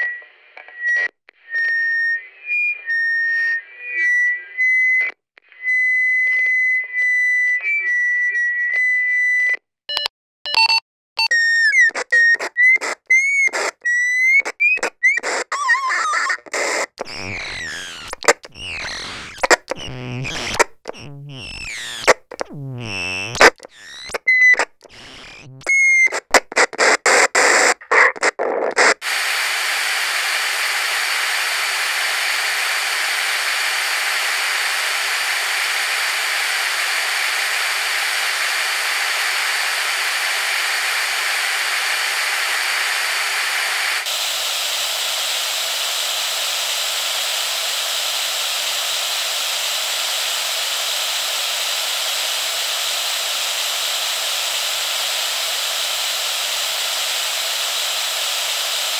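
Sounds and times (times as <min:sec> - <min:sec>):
walkie-talkie static: 0:11.9 - 0:13.8, 0:14.4 - 0:58.9.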